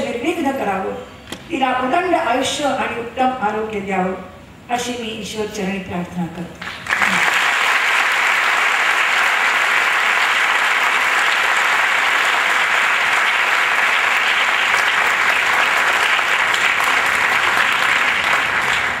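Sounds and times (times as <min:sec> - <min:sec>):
audience applauding: 0:06.6 - 0:19.0.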